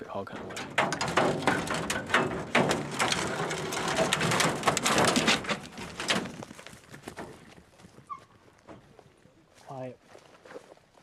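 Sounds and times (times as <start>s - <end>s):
metal dog box rattling: 0.3s - 6.5s.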